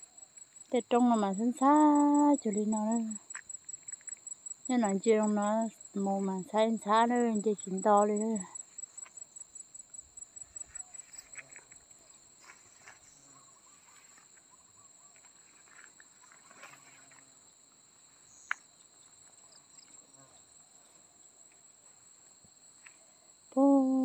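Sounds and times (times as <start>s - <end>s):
insects trilling: 0.0s - 24.0s.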